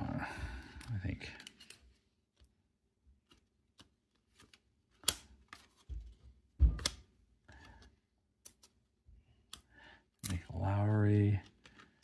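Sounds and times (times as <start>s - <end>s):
cards snapping and sliding: 3.2s - 5.9s, 6.7s - 8.8s.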